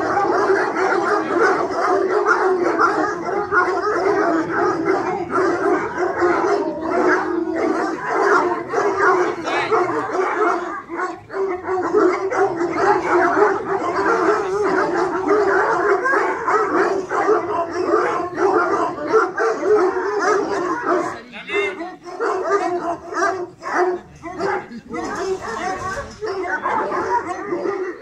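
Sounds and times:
hounds baying: 0.0s - 28.0s.

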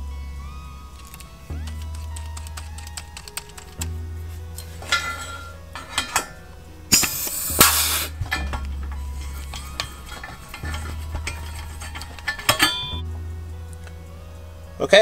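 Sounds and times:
small metal clicks: 1.0s - 13.0s
pneumatic tool air hiss: 6.9s - 8.2s.

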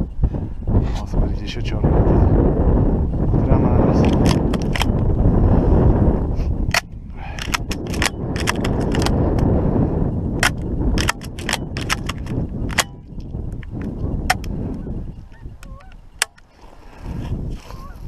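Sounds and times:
wind buffeting microphone: 0.0s - 18.0s
sharp clicks and knocks: 4.0s - 5.1s, 6.7s - 9.5s, 10.4s - 14.6s.

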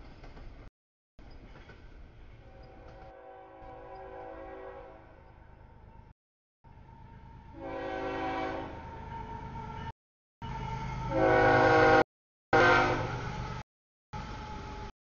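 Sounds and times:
train air horn blasts: 2.5s - 5.2s, 7.5s - 9.4s, 10.4s - 13.2s.

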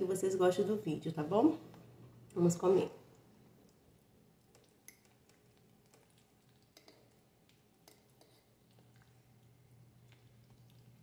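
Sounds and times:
soft eating clicks and squishes: 1.6s - 11.0s.

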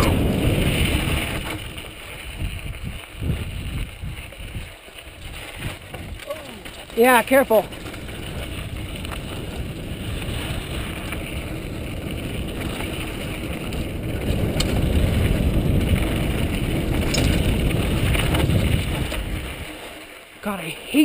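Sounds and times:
wind buffeting microphone: 0.0s - 19.8s
bike tyres rumbling on dirt: 0.0s - 21.0s
sharp rattles: 16.8s - 19.3s.

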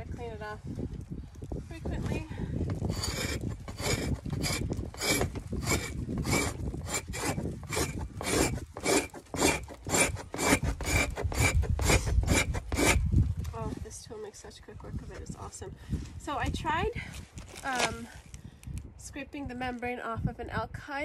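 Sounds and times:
hide scraper rasping on hide: 2.0s - 13.1s.

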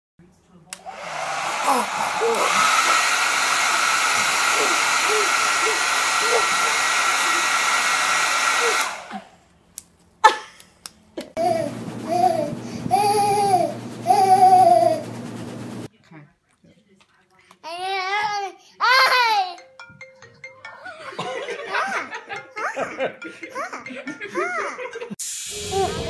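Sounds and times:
electric fan whooshing and whining: 0.8s - 9.2s, 11.4s - 15.9s
baby cooing: 1.6s - 2.6s, 4.5s - 7.4s, 11.4s - 15.0s
baby babbling loudly: 11.4s - 15.0s, 17.7s - 19.6s.

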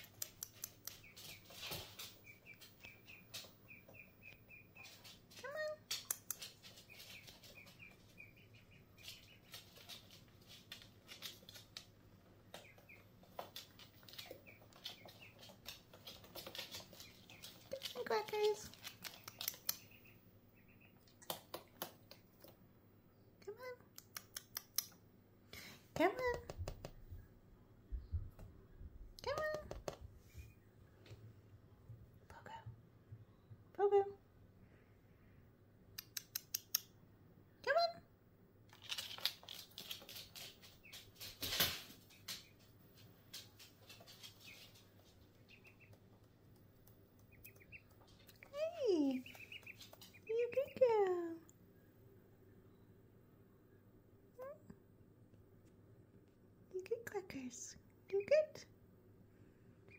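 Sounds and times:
dog claws clicking on floor: 0.0s - 3.6s, 4.8s - 8.1s, 9.0s - 19.9s, 21.1s - 22.6s, 36.0s - 36.9s, 38.7s - 48.5s
duckling peeping: 0.0s - 11.7s, 12.5s - 22.0s, 43.5s - 46.2s, 47.0s - 51.1s.

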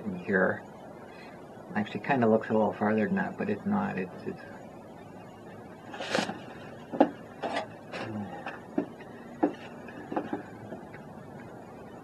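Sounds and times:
sharp clicks and knocks: 8.4s - 11.0s.

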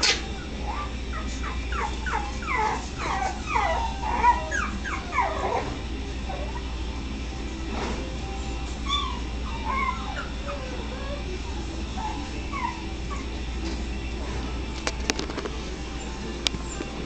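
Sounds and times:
puppies whimpering and yipping: 0.0s - 17.0s.

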